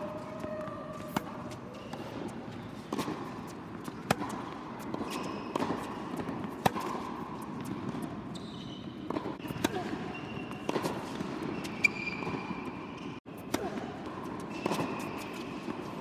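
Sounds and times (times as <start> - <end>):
tennis ball bouncing on court: 0.0 - 16.0
tennis ball hit by rackets: 0.6 - 8.2, 9.0 - 12.5.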